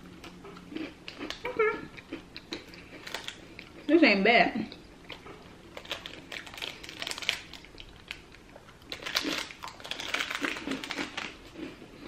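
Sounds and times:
plastic wrapper crinkling: 3.0 - 3.4, 5.7 - 11.5.

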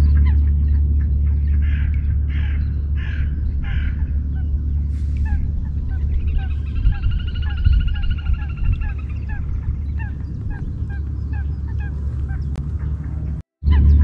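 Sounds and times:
bird call notes: 0.0 - 14.0
low rumble: 0.0 - 14.0
pulsed bird trill: 0.0 - 14.0.

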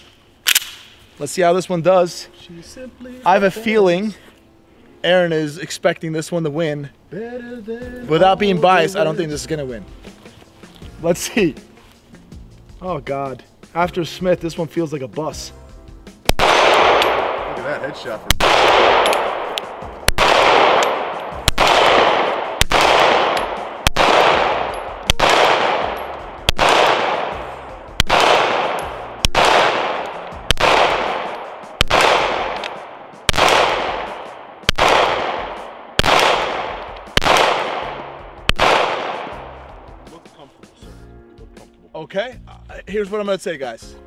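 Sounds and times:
pistol shots echoing: 16.3 - 39.5.

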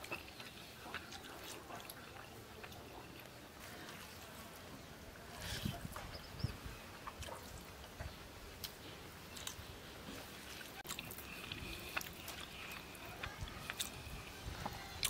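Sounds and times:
soft chewing: 0.0 - 15.0
fingers squishing food: 5.3 - 15.0.

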